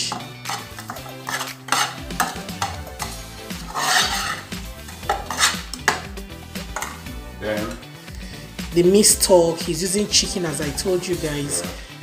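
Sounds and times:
metal spoon scraping a pan: 0:00.0 - 0:06.1, 0:06.7 - 0:07.1.

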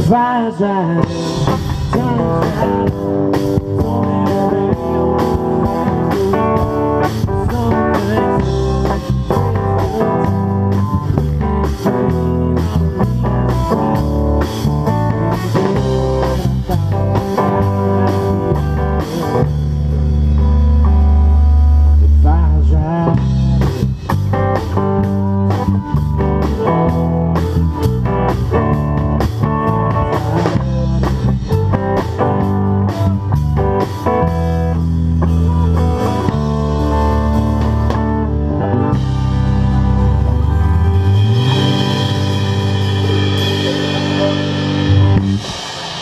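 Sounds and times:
rock band playing: 0:00.0 - 0:46.0
cymbals washing: 0:40.8 - 0:46.0.

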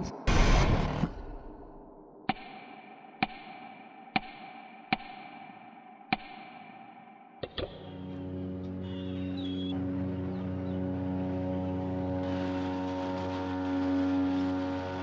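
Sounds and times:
low sustained music: 0:06.3 - 0:15.0.

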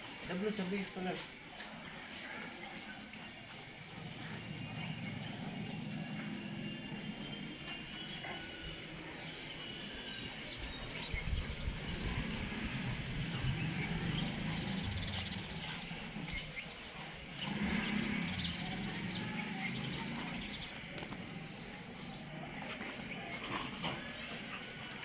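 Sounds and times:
low outdoor rumble: 0:01.9 - 0:09.7.

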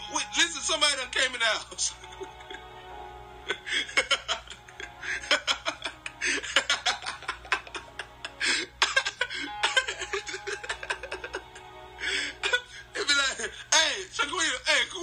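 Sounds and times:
background music: 0:00.0 - 0:15.0
woman laughing: 0:01.9 - 0:02.8, 0:03.4 - 0:11.6.

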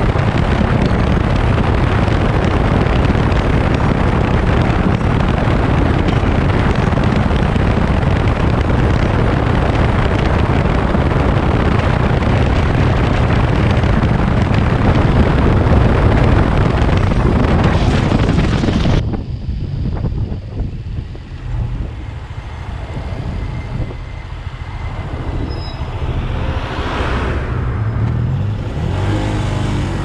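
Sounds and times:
motorcycle engine running: 0:00.0 - 0:22.1
wind noise on microphone: 0:00.0 - 0:30.0.

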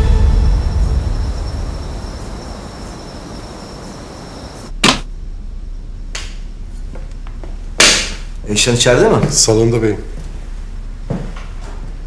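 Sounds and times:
soundtrack music: 0:00.0 - 0:02.8.

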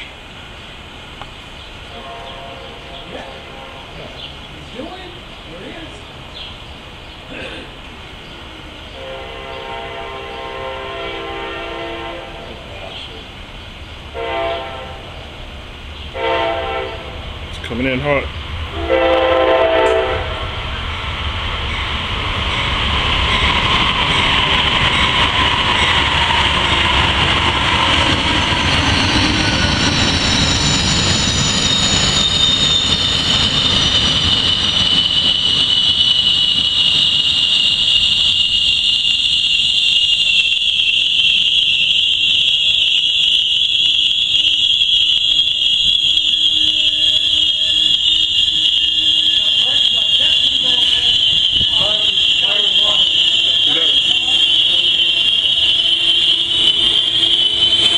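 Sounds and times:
train rumbling: 0:00.0 - 0:57.9
high-pitched brake squeal: 0:23.1 - 0:57.9.

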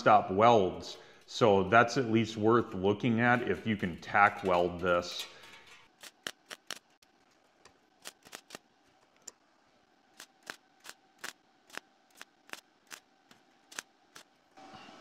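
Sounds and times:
welding arc pops: 0:06.0 - 0:07.0, 0:10.2 - 0:13.1.

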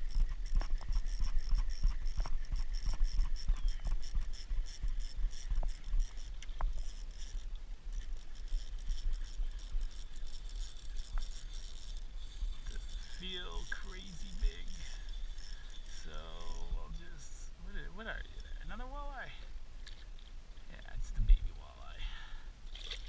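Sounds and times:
small clicks and knocks: 0:00.0 - 0:16.6.

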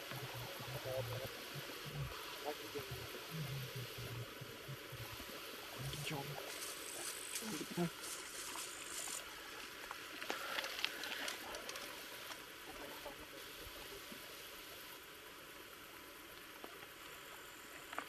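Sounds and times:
faint steady hiss: 0:00.0 - 0:18.0
bike tyres crackling on grit: 0:06.5 - 0:12.5.

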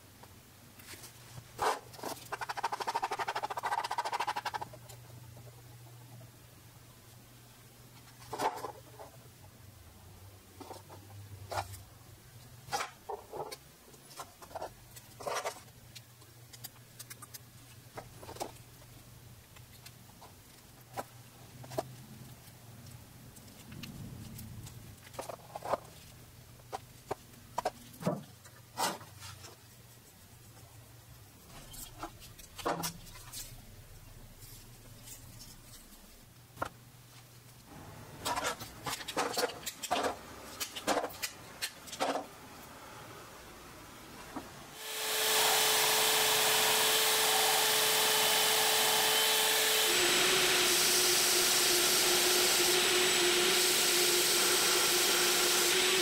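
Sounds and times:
low steady hum: 0:04.6 - 0:44.8.

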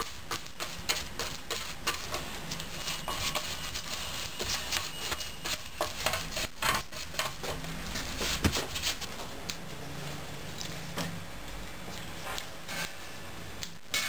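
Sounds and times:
small brush strokes: 0:00.0 - 0:07.0.

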